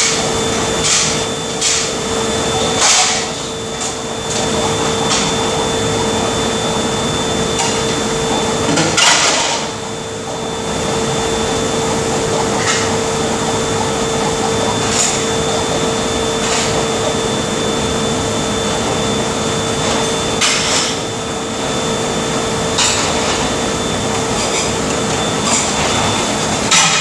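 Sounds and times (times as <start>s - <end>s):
loud mechanical drone: 0.0s - 26.8s
dishes and utensils clattering: 7.6s - 9.8s, 11.0s - 17.2s, 25.4s - 27.0s.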